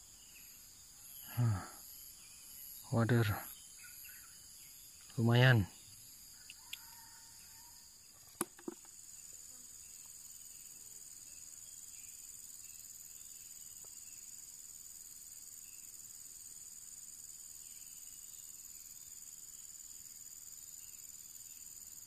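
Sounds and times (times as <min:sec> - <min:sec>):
high-pitched insect chorus: 0:00.0 - 0:22.0.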